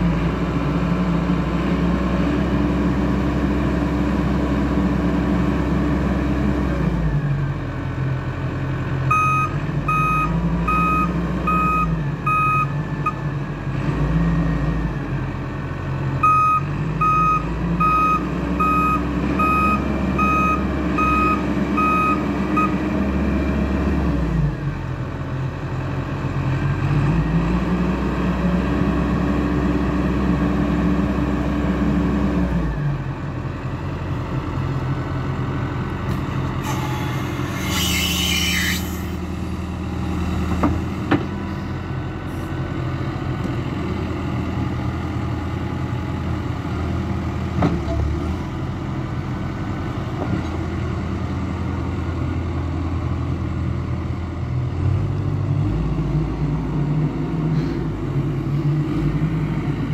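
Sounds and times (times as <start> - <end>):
backhoe diesel engine working: 0.0 - 59.9
reversing alarm beeping: 9.1 - 13.2, 16.2 - 22.8.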